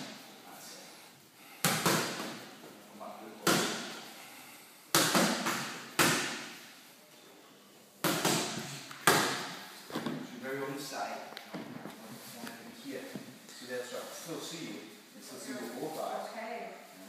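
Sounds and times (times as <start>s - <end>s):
gloved strikes on training pads: 3.4s - 4.0s, 4.9s - 6.6s, 8.0s - 9.6s.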